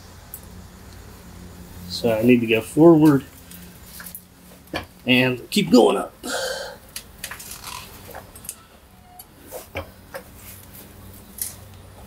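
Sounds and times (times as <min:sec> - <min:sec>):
person straining breath: 0:06.2 - 0:06.8.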